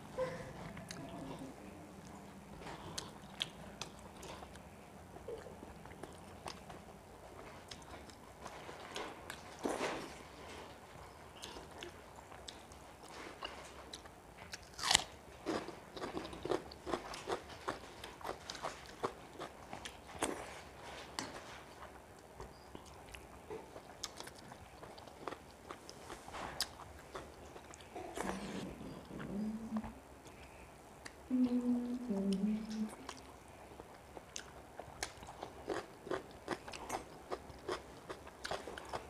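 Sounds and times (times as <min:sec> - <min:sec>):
person chewing with wet clicks: 0:00.7 - 0:09.7, 0:11.3 - 0:20.5, 0:21.2 - 0:29.3, 0:30.2 - 0:31.2, 0:32.3 - 0:39.0.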